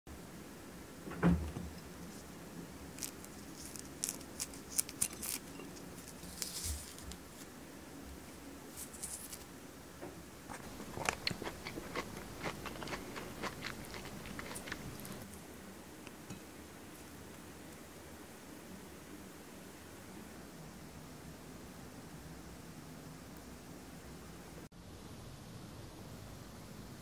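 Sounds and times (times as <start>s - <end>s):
peel crackling and tearing: 2.9s - 7.2s.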